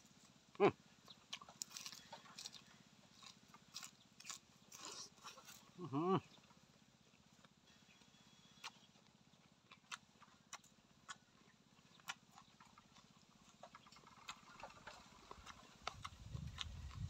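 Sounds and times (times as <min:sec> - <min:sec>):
eating mouth sounds: 0:09.4 - 0:17.0.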